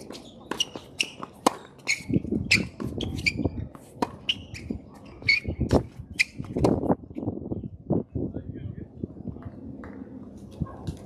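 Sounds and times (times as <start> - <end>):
racket striking ball: 0.0 - 3.3.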